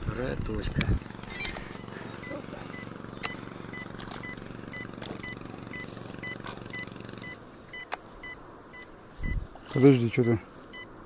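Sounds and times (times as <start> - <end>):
low mechanical hum: 0.0 - 11.0
sharp clicks: 0.7 - 1.9, 2.8 - 5.4, 6.2 - 8.4
short electronic beeps: 1.3 - 10.9.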